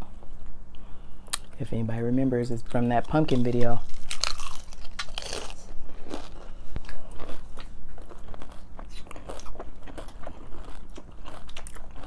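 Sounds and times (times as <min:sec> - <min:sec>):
crunchy tacos being chewed: 0:02.6 - 0:12.0.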